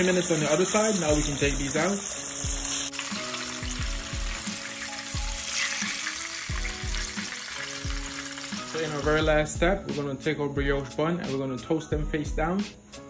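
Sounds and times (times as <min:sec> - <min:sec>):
chicken sizzling in hot oil: 0:00.0 - 0:09.8
background music with steady beat: 0:00.0 - 0:13.0.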